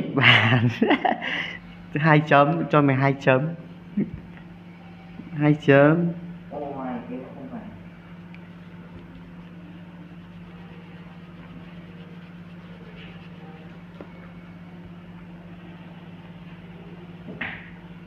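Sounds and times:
low electrical hum: 0.0 - 18.0
colouring scratches on paper: 8.6 - 14.4.

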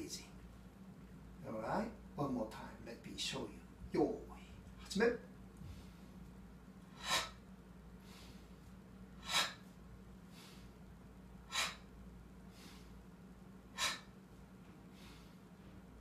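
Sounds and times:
soft breaths: 5.5 - 16.0
man breathing sharply: 5.6 - 6.2, 6.9 - 13.1, 13.7 - 14.2, 14.8 - 15.6.

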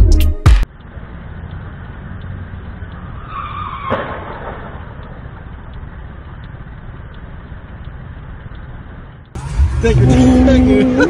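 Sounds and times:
traffic hum: 0.0 - 11.0
scooter crash: 3.9 - 4.8.

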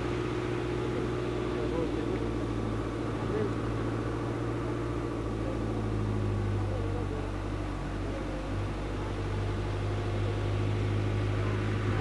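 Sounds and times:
road noise: 0.0 - 12.0
vehicle engine running: 0.0 - 12.0.

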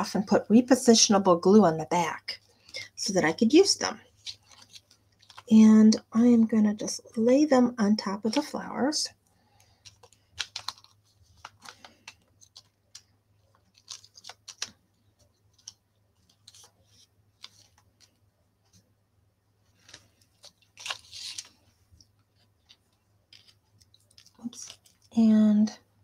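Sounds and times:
paper rustling: 4.0 - 5.5, 9.5 - 18.8, 19.7 - 25.1.

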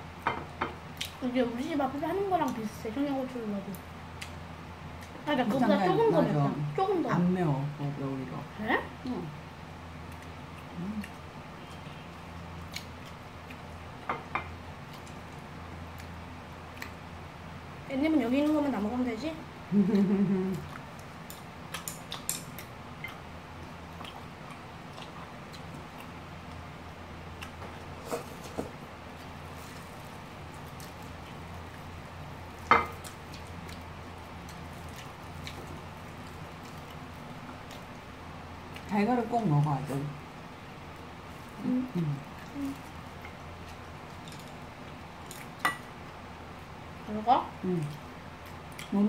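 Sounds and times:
steady low hum: 0.0 - 49.0
soft squishy chewing: 10.0 - 14.0, 20.5 - 28.5, 29.1 - 39.0, 40.8 - 46.2.

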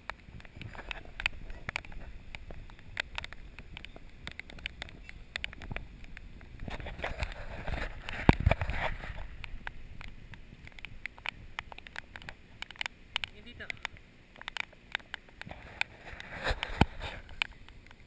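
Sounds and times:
bike clicks and rattles: 0.0 - 18.0
bike tyre noise: 0.0 - 18.0
wind rumbling on microphone: 0.0 - 18.0.

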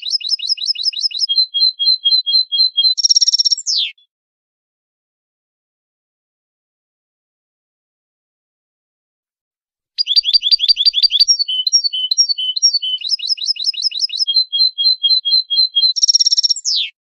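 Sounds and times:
goldfinch singing: 0.0 - 4.0, 10.0 - 16.9.

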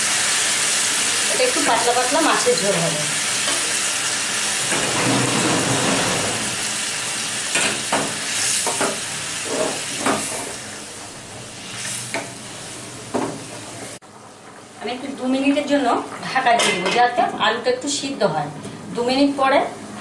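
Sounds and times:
water sizzling in hot pan: 0.0 - 14.0.

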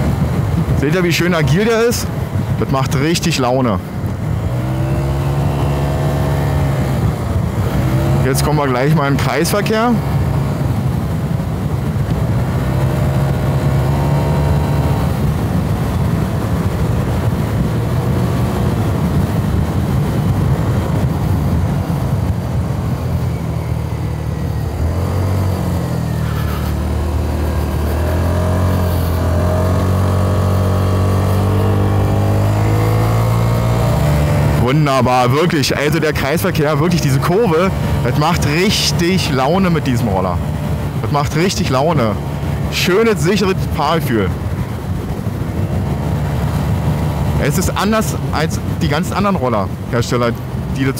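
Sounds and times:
wind and road noise: 0.0 - 50.9
scooter engine running: 10.0 - 34.8.

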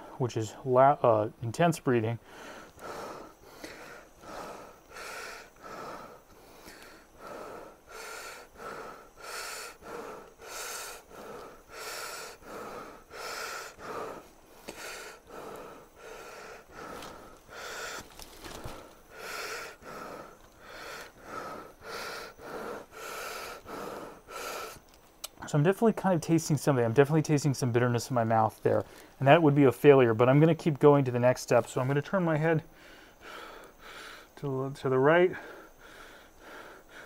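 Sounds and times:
person breathing hard and fast: 2.2 - 25.0, 28.8 - 29.2, 32.6 - 34.4, 35.3 - 37.0.

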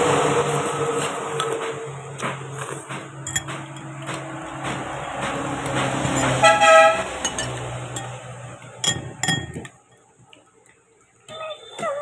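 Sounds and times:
vehicle engine running: 0.0 - 8.8
spoon clinking against bowl: 3.2 - 3.9, 7.2 - 10.1
horn toot: 6.1 - 7.2.

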